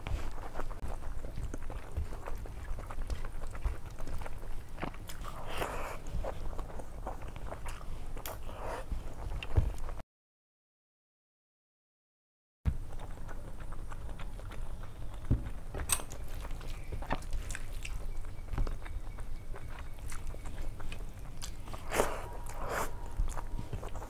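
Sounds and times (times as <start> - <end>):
chewing with wet mouth clicks: 0.0 - 9.9, 12.7 - 24.0.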